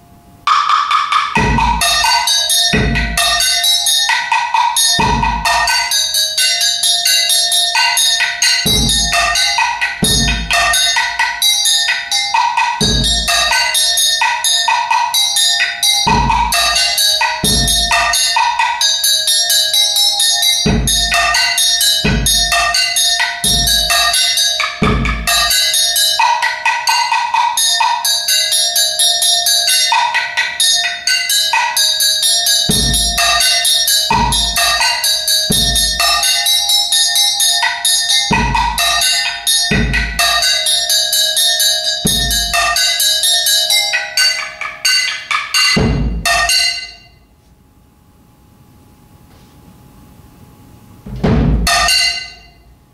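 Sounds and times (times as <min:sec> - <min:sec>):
steady ringing tone: 0:00.0 - 0:47.3, 0:50.0 - 0:52.9
fast strikes on metal percussion: 0:00.5 - 0:47.2, 0:51.1 - 0:52.6
bass drum thump: 0:05.0 - 0:05.6, 0:45.8 - 0:46.4, 0:51.0 - 0:51.9.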